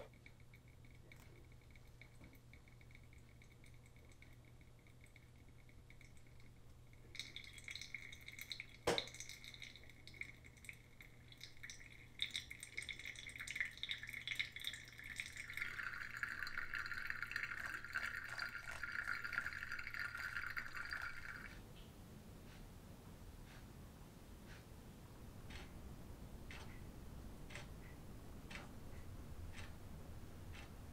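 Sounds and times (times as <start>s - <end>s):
water pouring onto coffee grounds: 7.1s - 21.5s.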